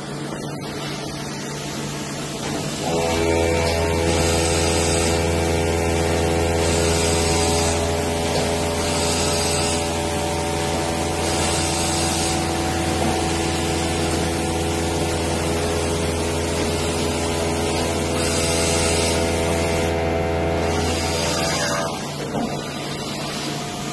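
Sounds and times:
boring machine running: 0:02.1 - 0:23.9
machine hiss: 0:02.4 - 0:23.9.

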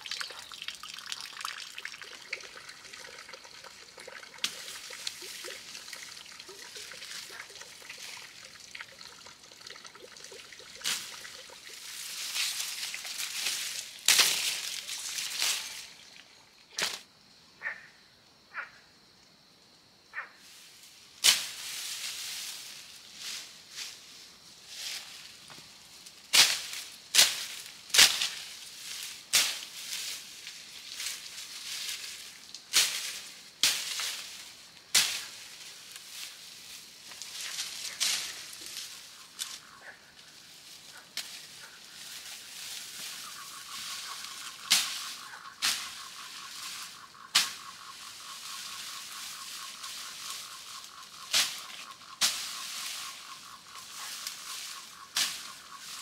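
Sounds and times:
rustle of fronds: 0:04.3 - 0:09.2, 0:09.9 - 0:17.1, 0:20.4 - 0:56.0
machete chopping fern stems: 0:13.4 - 0:15.7, 0:21.2 - 0:21.6, 0:26.3 - 0:28.4, 0:34.9 - 0:35.4, 0:44.6 - 0:46.0, 0:47.3 - 0:47.7, 0:51.3 - 0:53.2.

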